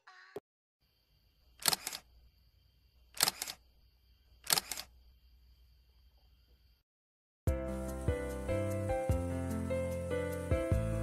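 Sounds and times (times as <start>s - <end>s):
shutter-like double clicks: 1.6s - 2.1s, 3.2s - 3.6s, 4.4s - 4.9s.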